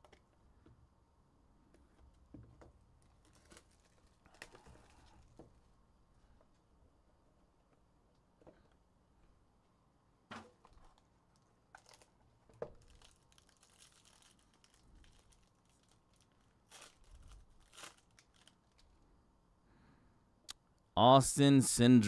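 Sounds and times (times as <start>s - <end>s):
foil wrapper crinkling and tearing: 3.0s - 5.2s, 10.7s - 18.9s.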